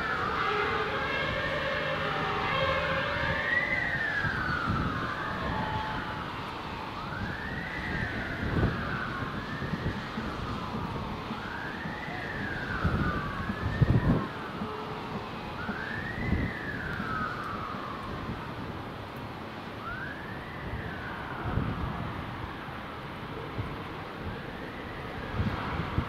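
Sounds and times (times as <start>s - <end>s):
emergency sirens wailing: 0.0s - 26.0s
traffic rumble on wet road: 0.0s - 26.0s.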